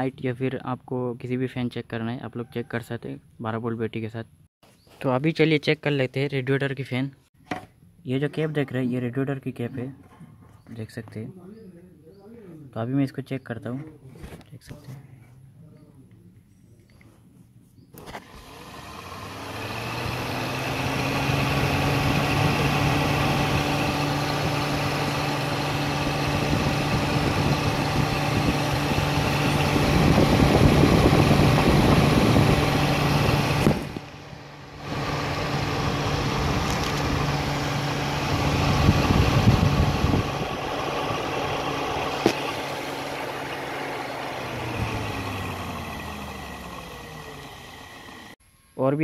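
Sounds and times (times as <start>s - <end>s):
electric fan motor humming: 18.0s - 48.4s.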